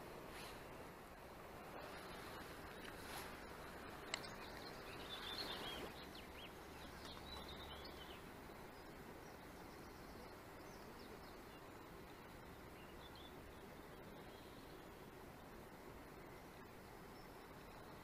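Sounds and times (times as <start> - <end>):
low outdoor hiss: 0.0 - 18.0
small birds chirping: 1.8 - 11.9.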